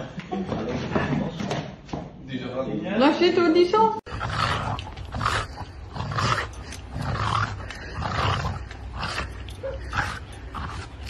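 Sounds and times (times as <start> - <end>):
dog growling: 4.1 - 11.0.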